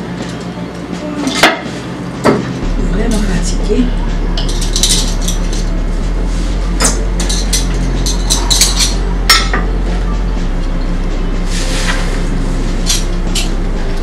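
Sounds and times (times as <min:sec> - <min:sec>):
low hum: 0:01.8 - 0:14.0.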